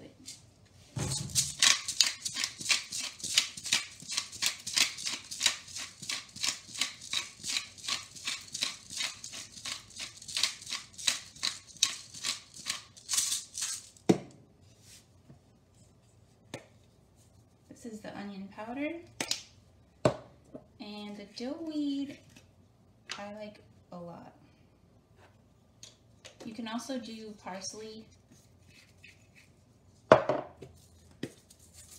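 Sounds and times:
pepper grinder crunching rasp: 0:01.3 - 0:13.9.

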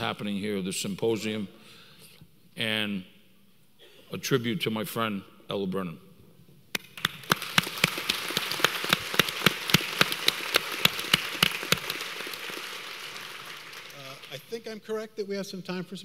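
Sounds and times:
audience applauding: 0:06.8 - 0:14.6.

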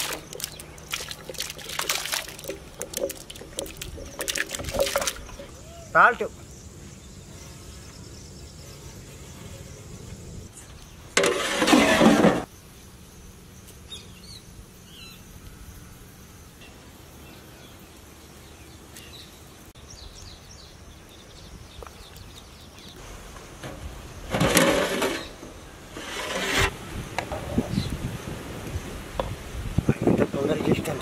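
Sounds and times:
birds chirping: 0:00.0 - 0:11.2, 0:13.5 - 0:24.3
low rural background: 0:00.0 - 0:31.0.

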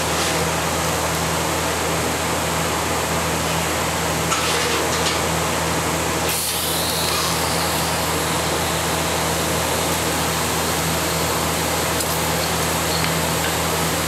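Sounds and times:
machine hum: 0:05.0 - 0:14.0.

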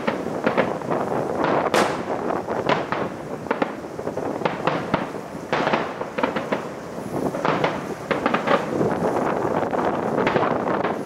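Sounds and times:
fireworks bangs and crackles: 0:00.0 - 0:11.0
fireworks rumble: 0:00.0 - 0:11.0.

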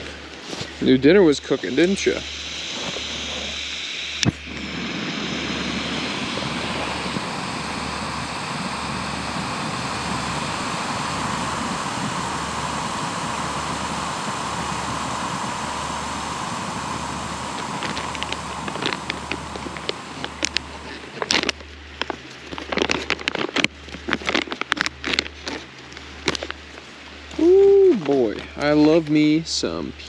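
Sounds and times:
gas stove burner roaring: 0:00.8 - 0:22.1
foil pouch crinkling: 0:17.6 - 0:26.9.

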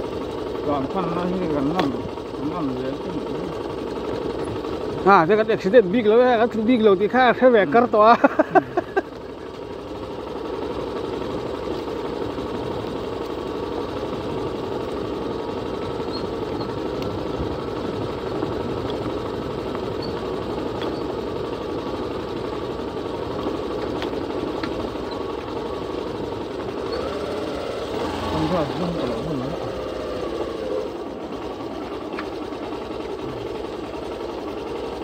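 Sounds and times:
motorcycle engine running: 0:00.0 - 0:35.0
faint clicks and rattles: 0:10.3 - 0:27.2.

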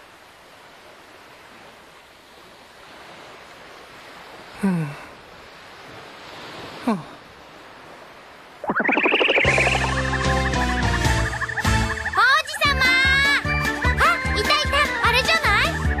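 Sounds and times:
ocean waves: 0:00.0 - 0:16.0
person sighing: 0:04.6 - 0:05.2, 0:06.7 - 0:07.2.

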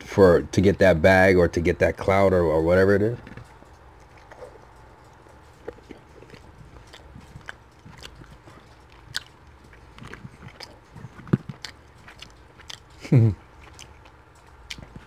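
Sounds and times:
person chewing: 0:03.4 - 0:15.0
wet mouth clicks and smacks: 0:04.0 - 0:15.0.

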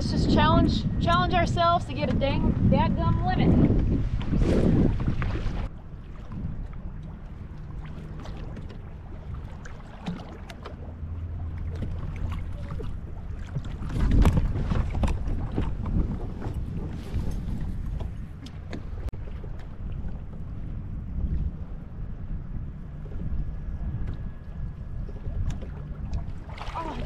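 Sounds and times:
water slapping boat hull: 0:00.0 - 0:27.0
wind on microphone: 0:00.0 - 0:27.0
clicks and knocks from boat: 0:06.3 - 0:20.5, 0:23.9 - 0:24.4, 0:25.0 - 0:27.0.

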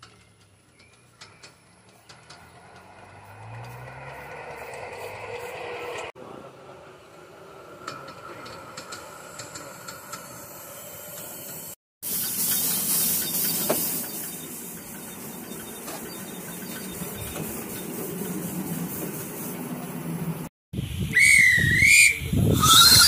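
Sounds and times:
steam locomotive hissing: 0:07.1 - 0:23.0.

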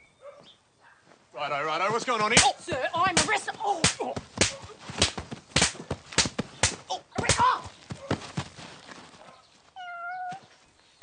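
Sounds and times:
open-hand slaps: 0:02.3 - 0:07.5.

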